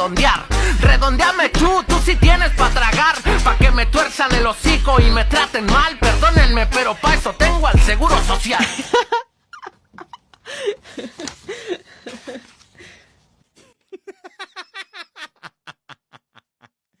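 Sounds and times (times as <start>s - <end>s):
person laughing: 8.5s - 12.7s, 13.6s - 16.8s.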